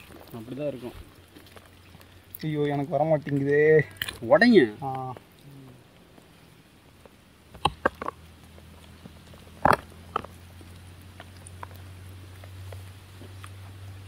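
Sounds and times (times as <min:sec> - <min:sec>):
meat bitten off bone crunching: 0:03.9 - 0:04.2, 0:07.5 - 0:13.7.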